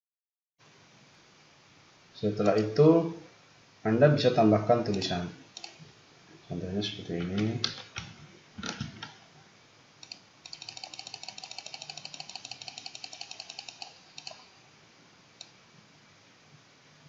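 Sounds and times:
computer mouse clicks: 0:04.9 - 0:05.8, 0:10.0 - 0:14.5.

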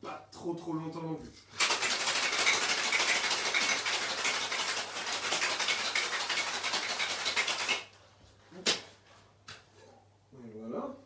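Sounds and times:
ice rattling in cocktail shaker: 0:01.6 - 0:07.9.

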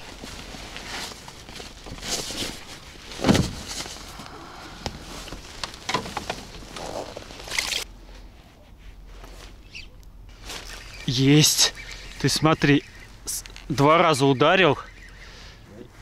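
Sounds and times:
handling knocks and rustling: 0:00.0 - 0:07.8.

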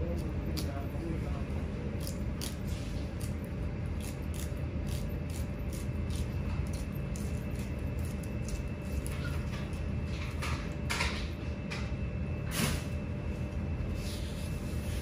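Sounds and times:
steady low hum: 0:00.0 - 0:15.0
knife scraping fish skin: 0:02.0 - 0:09.8.

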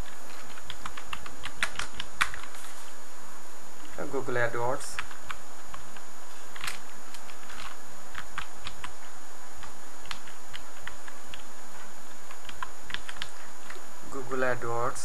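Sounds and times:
typing on a computer keyboard: 0:00.0 - 0:02.5, 0:12.3 - 0:13.8.

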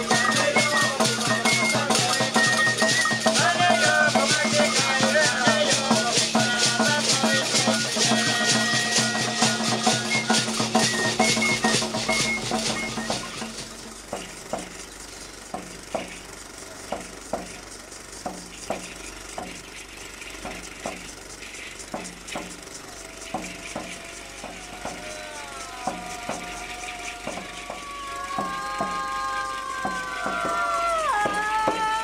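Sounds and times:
long falling vocal cry: 0:00.0 - 0:10.8, 0:22.8 - 0:32.0
drum beaten in paired strokes: 0:00.0 - 0:19.8, 0:21.8 - 0:32.0
gourd rattles shaken: 0:00.0 - 0:32.0.

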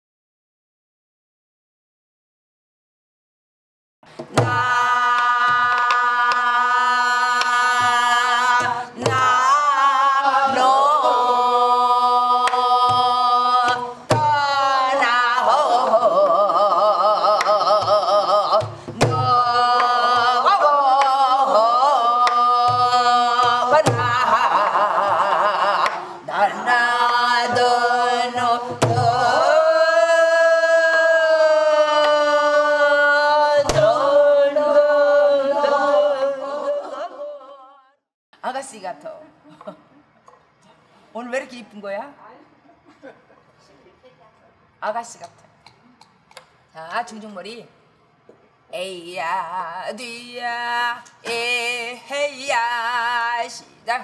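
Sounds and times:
woman singing long held notes: 0:04.3 - 0:37.9.

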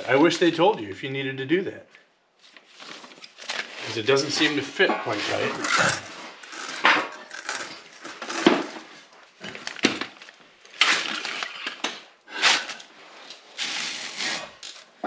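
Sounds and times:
hardware knocks and scrapes: 0:04.4 - 0:07.2.

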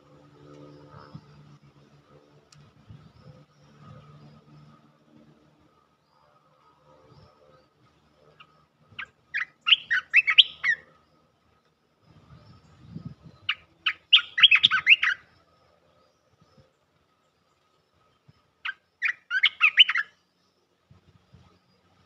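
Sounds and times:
bird chirping calls: 0:08.3 - 0:11.2, 0:12.2 - 0:20.6.

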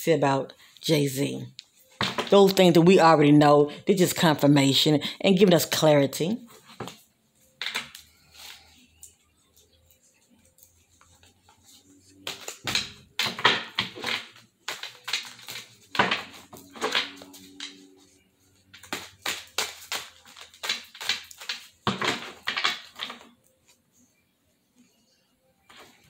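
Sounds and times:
cards being shuffled: 0:07.6 - 0:17.9, 0:18.6 - 0:23.3.

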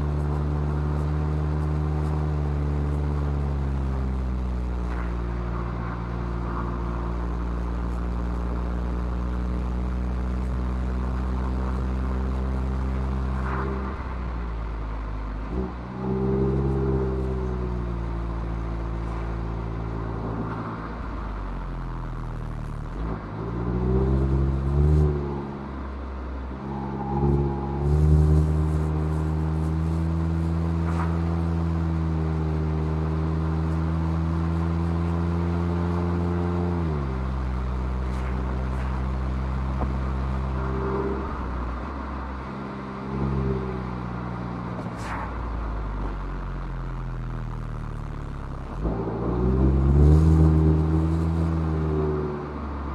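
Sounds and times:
car engine revving: 0:00.0 - 0:52.9.

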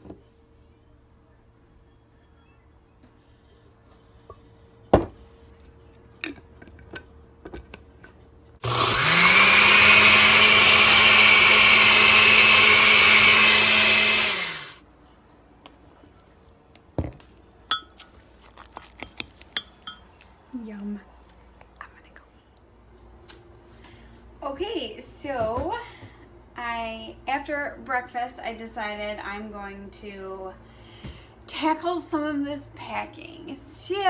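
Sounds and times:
blender motor running: 0:08.6 - 0:14.8.

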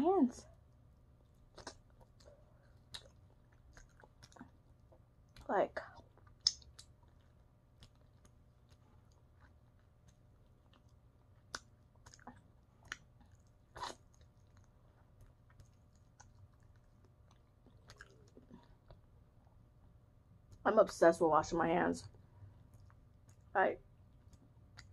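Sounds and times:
close-up chewing and crunching: 0:00.7 - 0:20.6, 0:22.0 - 0:24.9
wet mouth clicks: 0:01.5 - 0:04.5, 0:05.3 - 0:08.4, 0:11.5 - 0:14.7.

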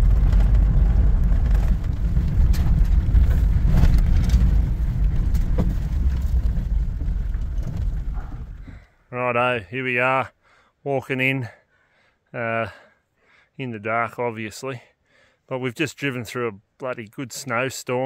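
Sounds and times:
knocks and rattles: 0:00.0 - 0:08.9
low rumble of engine and tyres: 0:00.0 - 0:08.9.

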